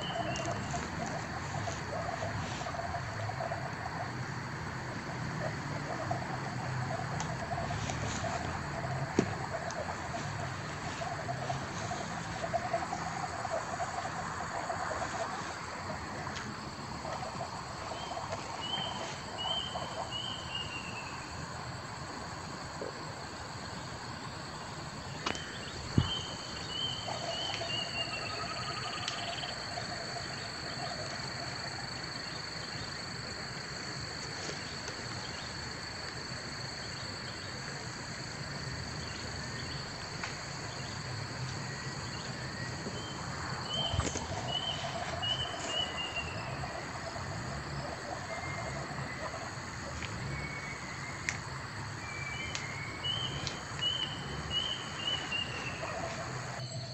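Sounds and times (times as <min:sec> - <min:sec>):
insect-like buzz: 0:38.8 - 0:56.9
bird chirps: 0:50.0 - 0:56.1.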